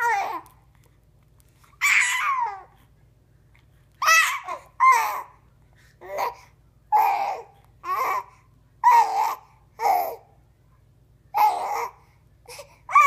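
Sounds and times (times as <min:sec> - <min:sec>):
baby babbling: 0:00.0 - 0:00.6, 0:07.0 - 0:10.2, 0:11.4 - 0:12.0.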